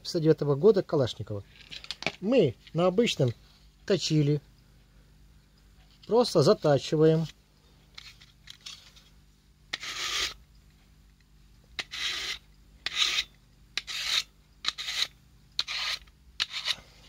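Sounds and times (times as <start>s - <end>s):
blade scraping through knife sharpener: 9.7s - 10.4s, 11.8s - 16.9s.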